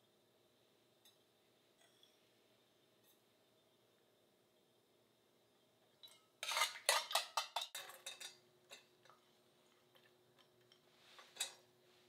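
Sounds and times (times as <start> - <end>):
metal spoon clinking on steel bowl: 6.0 - 9.2.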